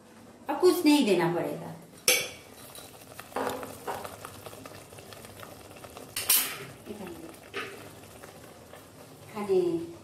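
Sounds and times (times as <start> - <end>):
food sizzling in oil: 2.1 - 10.0.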